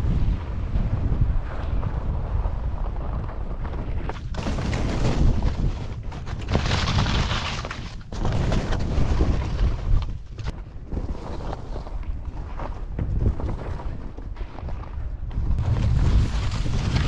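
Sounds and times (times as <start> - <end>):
wind buffeting microphone: 0.0 - 17.0
skis scraping on snow: 1.4 - 17.0.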